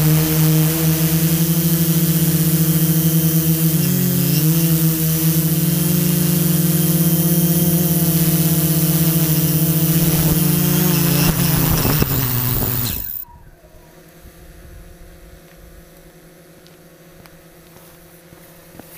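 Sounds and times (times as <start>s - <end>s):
drone propellers humming: 0.0s - 13.2s.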